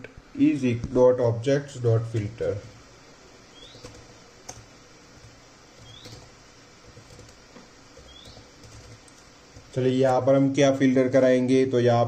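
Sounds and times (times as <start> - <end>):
low background hum: 0.0 - 12.0
keyboard typing clicks: 3.7 - 6.3, 6.9 - 7.4, 8.0 - 9.7.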